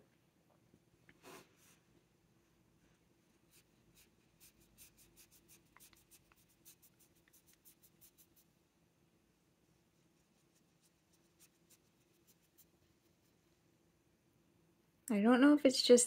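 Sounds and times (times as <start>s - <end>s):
paintbrush swishing on paper: 3.4s - 8.6s, 9.8s - 13.6s.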